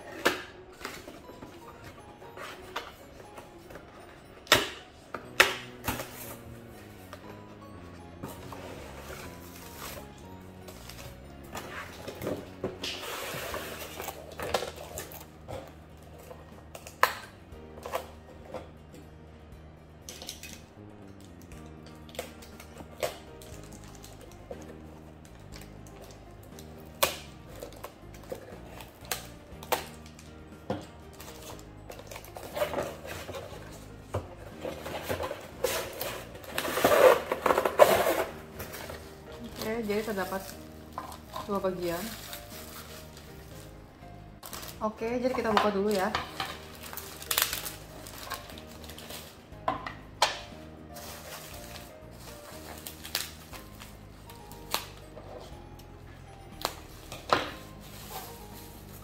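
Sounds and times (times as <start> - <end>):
background music: 0.0 - 59.0
plastic packaging crinkling: 34.6 - 43.8, 44.4 - 44.8, 45.8 - 49.4, 50.9 - 55.1.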